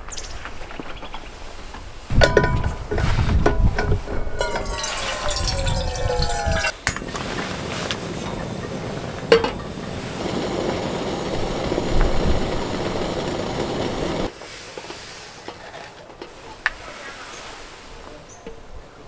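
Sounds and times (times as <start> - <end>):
kettle clinking on grate: 2.2 - 7.3, 7.9 - 11.3
gas stove burner hissing: 7.1 - 14.3.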